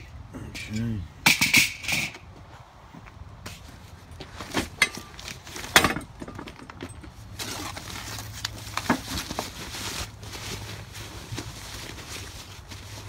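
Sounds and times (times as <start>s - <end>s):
plastic wrap crinkling: 7.4s - 13.0s.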